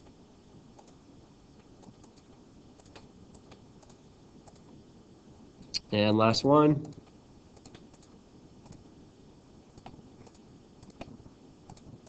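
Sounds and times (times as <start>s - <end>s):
low room hum: 0.0s - 12.0s
computer mouse clicks: 0.8s - 1.0s, 1.6s - 4.7s, 6.8s - 8.8s, 9.7s - 12.0s.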